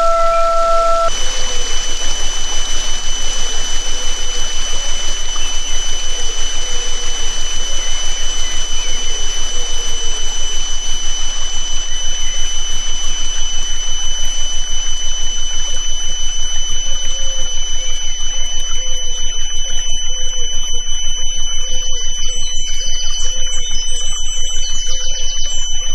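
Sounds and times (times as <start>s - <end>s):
faint bird chirps: 0.0s - 4.5s
steady high sine tones: 0.0s - 25.9s.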